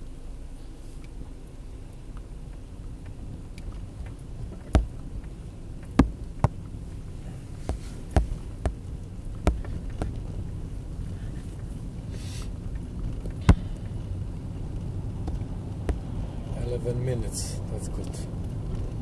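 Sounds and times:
car low rumble: 0.0 - 19.0
sharp clicks and knocks: 2.2 - 10.8, 12.6 - 16.5.

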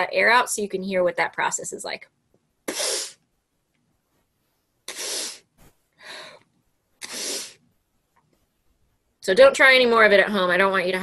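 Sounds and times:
air forced from cheeks: 2.7 - 3.2, 4.9 - 5.8, 7.0 - 7.6
person sniffing through nose: 2.7 - 3.2, 4.9 - 5.6, 7.0 - 7.6.

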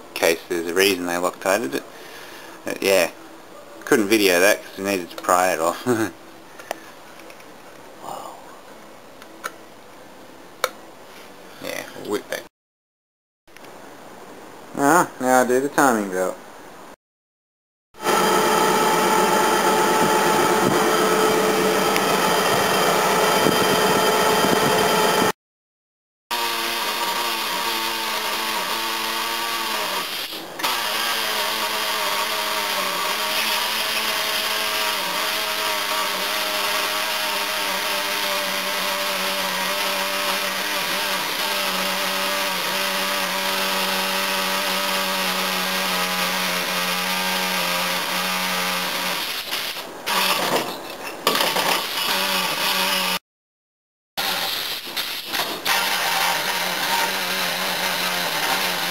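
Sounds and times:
air compressor motor humming: 18.0 - 25.3.

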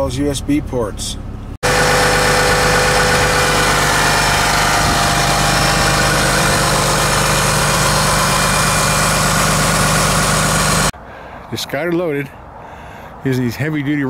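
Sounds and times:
vehicle engine idling: 1.2 - 11.0.

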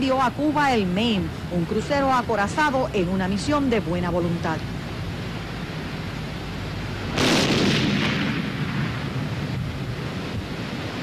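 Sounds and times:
loud explosion blast: 7.1 - 9.8.

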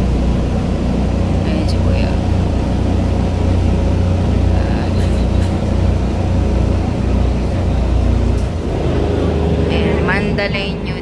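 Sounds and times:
ferry engines running: 0.0 - 11.0.

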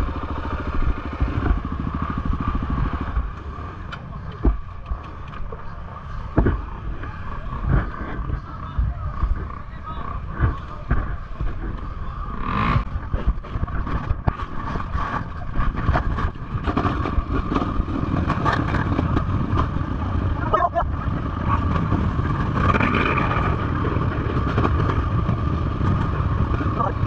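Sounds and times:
dirt bike engine at low revs: 0.0 - 27.0
knocks and rattles: 12.6 - 27.0.

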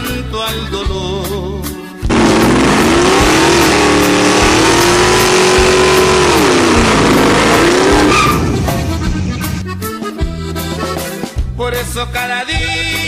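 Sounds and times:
spinning tyres hissing: 2.1 - 9.6
truck engine revving high: 2.1 - 9.8.

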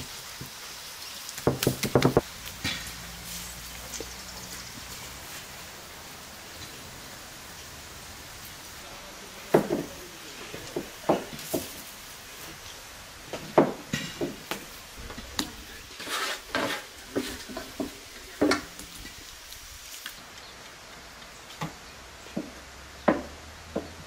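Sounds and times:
dough thumping on wooden table: 1.5 - 2.2
dough scraping: 15.7 - 18.0.

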